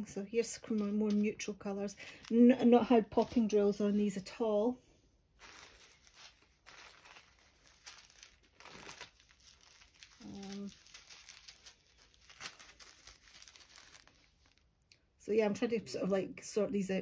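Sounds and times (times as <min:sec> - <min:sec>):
plastic bags crinkling: 0:00.3 - 0:04.2, 0:05.4 - 0:14.9.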